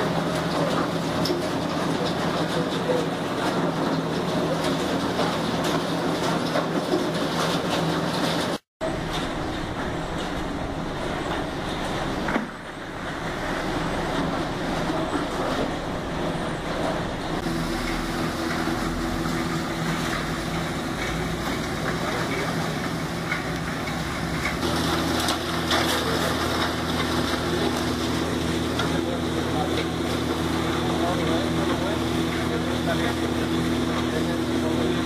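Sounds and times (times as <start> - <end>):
electric motors humming: 8.9 - 35.0.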